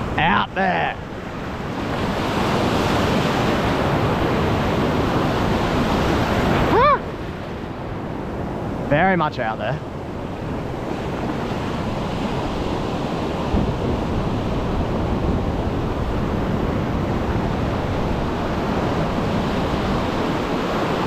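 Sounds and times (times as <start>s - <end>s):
shallow surf washing: 0.0s - 21.0s
wind buffeting microphone: 9.8s - 21.0s.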